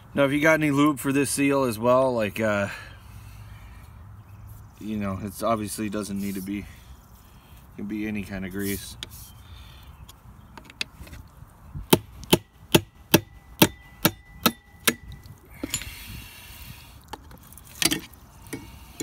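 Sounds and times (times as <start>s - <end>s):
scrape: 6.1s - 7.5s, 8.5s - 9.4s
metallic ring: 13.3s - 16.0s.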